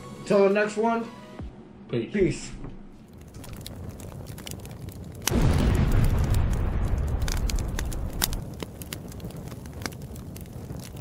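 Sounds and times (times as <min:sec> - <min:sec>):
crackling: 0:03.0 - 0:11.0
deep explosion boom: 0:03.2 - 0:10.6.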